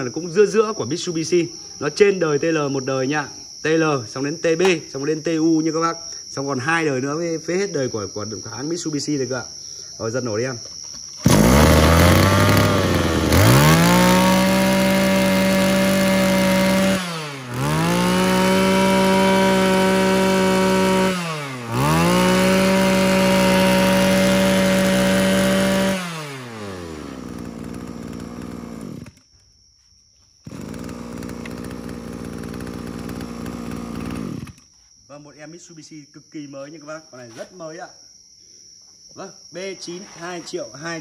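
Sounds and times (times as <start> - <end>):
brush cutter engine revving: 11.0 - 29.2, 30.4 - 34.8.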